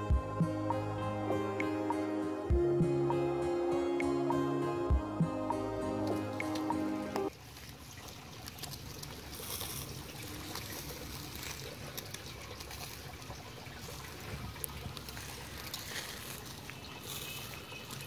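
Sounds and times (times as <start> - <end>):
meat sizzling on grill: 9.3 - 9.8, 17.0 - 18.0.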